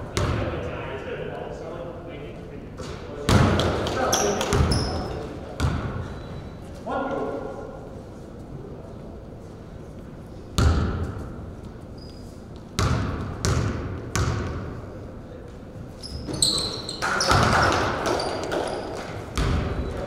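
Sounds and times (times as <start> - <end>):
basketball bouncing on gym floor: 0.1 - 0.5, 2.9 - 6.3, 10.6 - 11.4, 12.6 - 14.8, 16.0 - 20.0
sneaker squeaks: 4.0 - 6.9, 10.5 - 12.9, 15.9 - 20.0.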